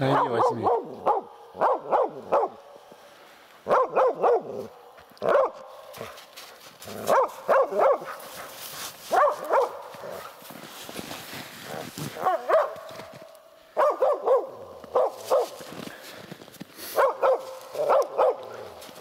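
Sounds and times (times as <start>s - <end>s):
dog barking: 0.0s - 2.6s, 3.6s - 6.2s, 7.0s - 8.5s, 9.1s - 10.4s, 12.2s - 13.1s, 13.8s - 15.7s, 16.9s - 19.0s.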